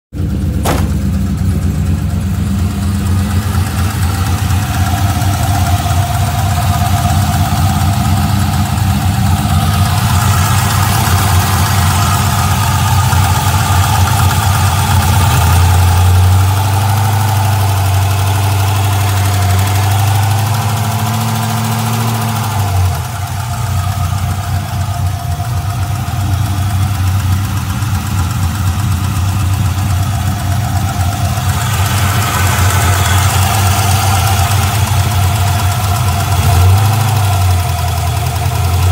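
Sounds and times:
car engine idling: 0.1 - 38.9
engine ticking and knocking: 0.1 - 38.9.

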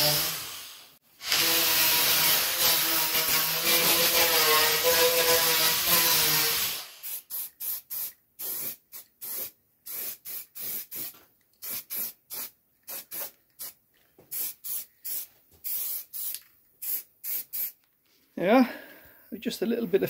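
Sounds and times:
aerosol spray can hissing: 5.8 - 17.8.

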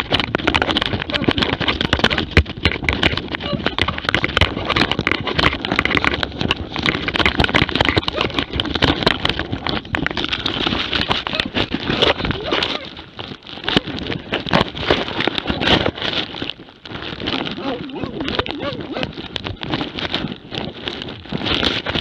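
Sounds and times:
rustling and knocking on camera: 0.0 - 22.0
animal noises: 8.0 - 8.5, 11.3 - 13.0, 17.5 - 19.2.

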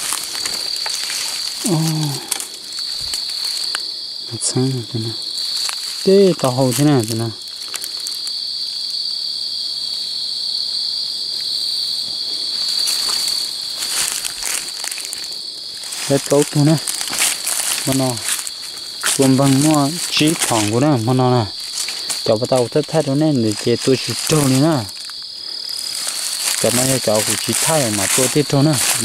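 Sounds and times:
night insects trilling: 0.0 - 29.0
man's voice: 4.3 - 5.2, 6.0 - 7.4, 16.0 - 16.9, 17.8 - 18.3, 19.1 - 21.6, 22.2 - 25.0, 26.5 - 29.0.

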